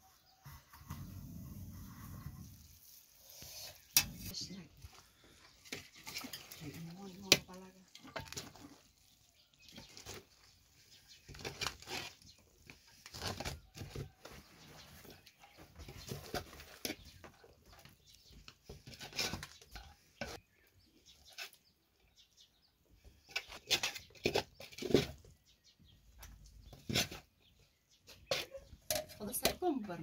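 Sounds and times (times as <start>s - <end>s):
metal skimmer scraping a pot: 1.7s - 10.4s, 18.6s - 20.4s.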